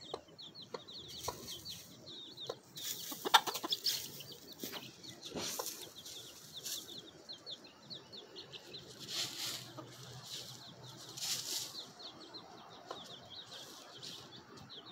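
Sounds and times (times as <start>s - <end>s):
hen scuffling in dry leaves: 2.8s - 7.0s, 8.7s - 12.1s, 13.4s - 14.4s.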